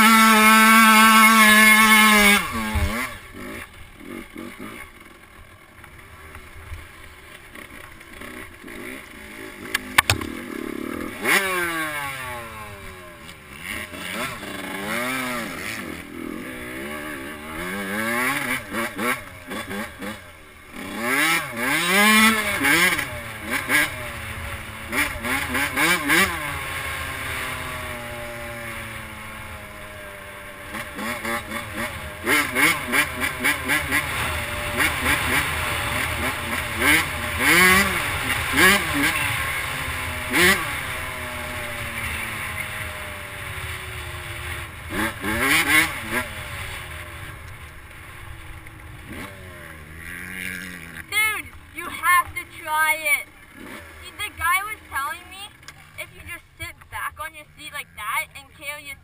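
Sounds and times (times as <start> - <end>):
dirt bike engine revving: 0.0 - 59.0
sharp click: 9.7 - 10.4.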